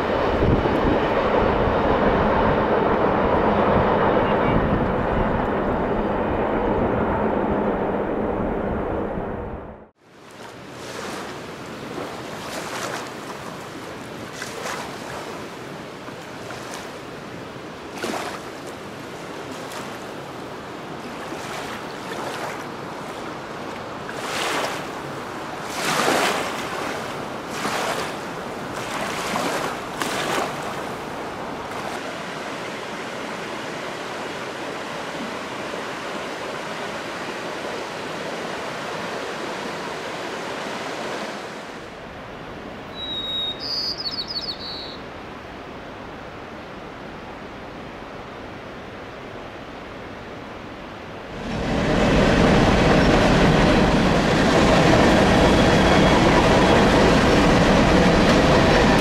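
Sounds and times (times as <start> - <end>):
wind gusts: 0.0 - 59.0
river water rushing: 10.0 - 44.0, 44.6 - 59.0
sparrow singing: 42.9 - 45.0.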